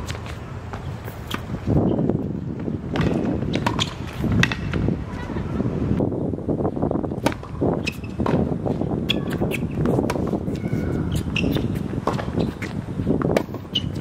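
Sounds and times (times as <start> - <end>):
shoe squeaks: 0.0 - 2.1, 3.7 - 4.4, 7.8 - 8.3, 9.1 - 14.0
racket hitting tennis ball: 2.9 - 4.9, 7.1 - 14.0.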